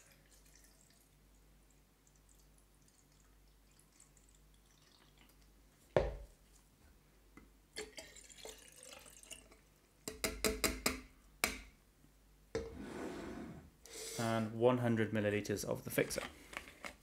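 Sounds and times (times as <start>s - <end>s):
water trickling into glass: 0.0s - 1.2s, 2.0s - 5.5s, 7.8s - 9.7s
water poured into bottle: 7.8s - 9.6s.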